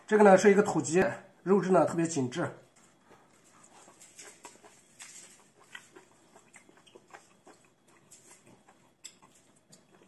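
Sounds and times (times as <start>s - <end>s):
mouth clicks chewing: 3.1s - 10.0s.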